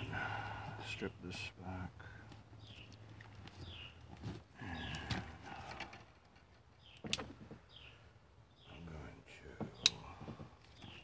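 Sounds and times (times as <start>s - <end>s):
clicks and knocks of wires: 4.9s - 7.6s.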